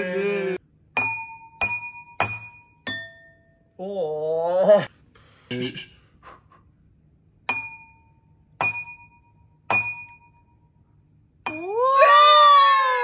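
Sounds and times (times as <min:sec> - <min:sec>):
spoon tapping wine glasses: 0:07.5 - 0:10.4.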